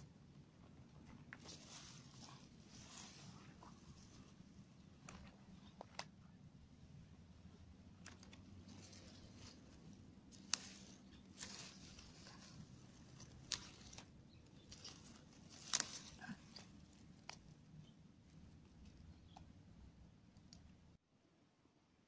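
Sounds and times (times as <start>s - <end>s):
leaves rustling: 1.2s - 6.1s, 7.9s - 19.0s
plant stems snapping: 8.0s - 17.5s.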